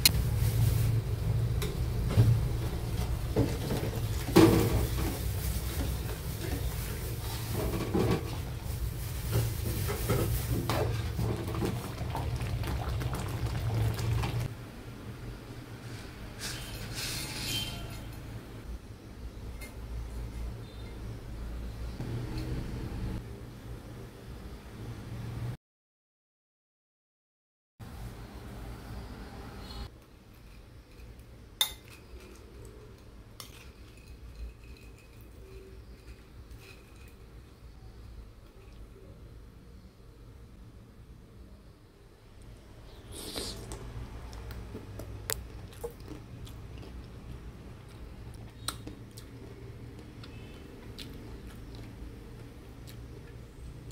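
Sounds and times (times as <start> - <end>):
metal spoon scraping wok: 16.4 - 18.3.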